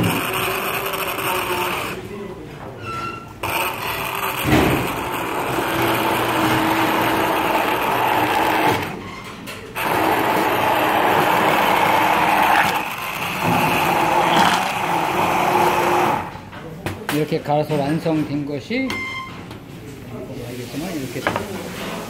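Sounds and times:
hand blender running: 0:00.0 - 0:02.0, 0:03.4 - 0:09.0, 0:09.8 - 0:16.3.

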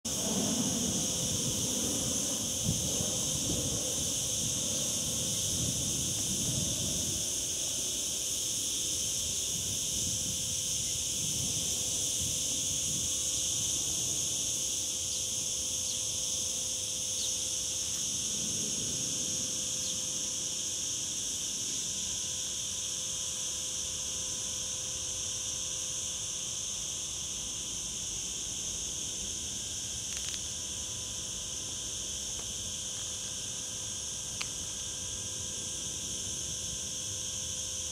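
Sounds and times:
cicadas buzzing: 0:00.0 - 0:37.9.

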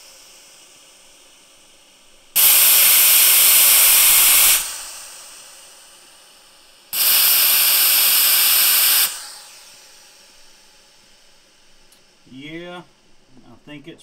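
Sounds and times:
compressed air hissing: 0:00.0 - 0:13.1.

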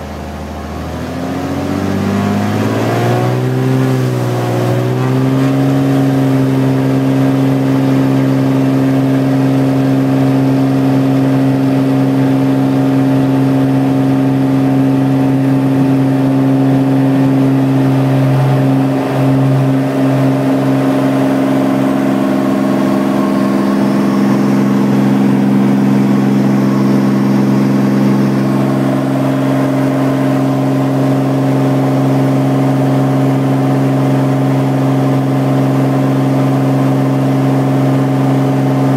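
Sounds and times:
aircraft engine and propeller drone: 0:00.0 - 0:38.9
higher hum: 0:15.4 - 0:32.1.

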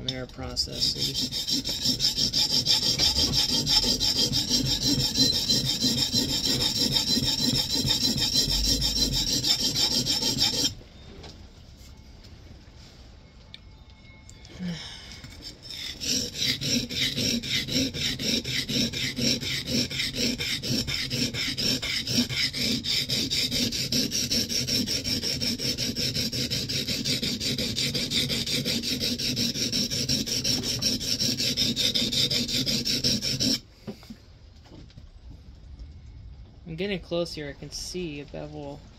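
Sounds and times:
steel blade rasping on whetstone: 0:00.1 - 0:10.8, 0:15.2 - 0:33.6.

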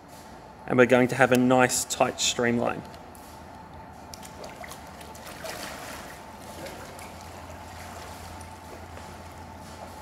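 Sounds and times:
pool water splashing: 0:04.2 - 0:09.4.

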